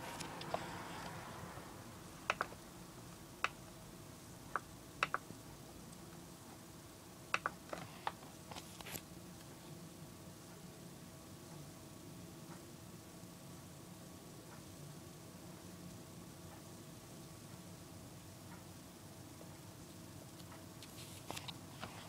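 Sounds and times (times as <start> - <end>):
faint steady hum: 0.0 - 22.0
computer mouse clicking: 2.3 - 2.6, 3.4 - 3.6, 4.5 - 5.2, 7.3 - 8.2.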